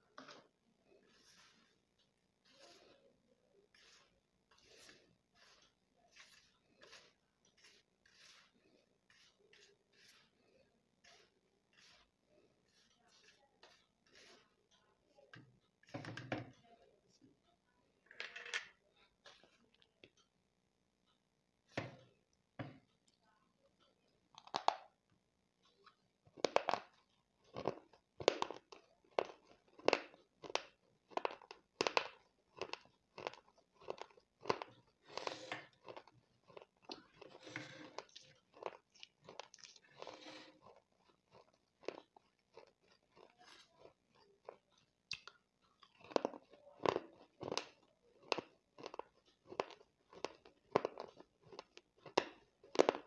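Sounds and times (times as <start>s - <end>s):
crunchy chewing mouth sounds: 26.8s - 53.0s.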